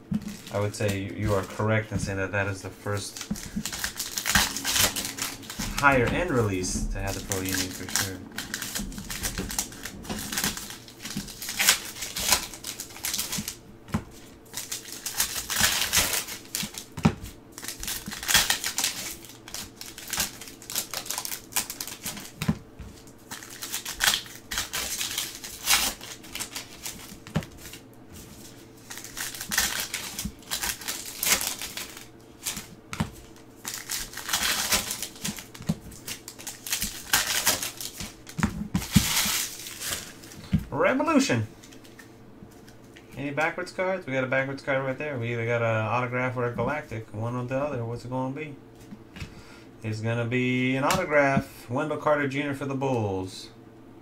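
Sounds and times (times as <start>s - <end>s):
foil wrappers crinkling and tearing: 0.2s - 40.5s, 41.6s - 42.8s.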